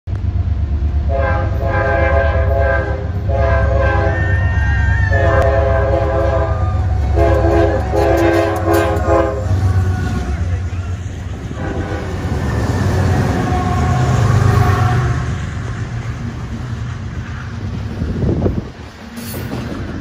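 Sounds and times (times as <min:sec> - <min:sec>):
locomotive engine rumble: 0:00.1 - 0:20.0
locomotive horn blasts: 0:01.1 - 0:04.4, 0:05.1 - 0:10.1, 0:11.5 - 0:15.4.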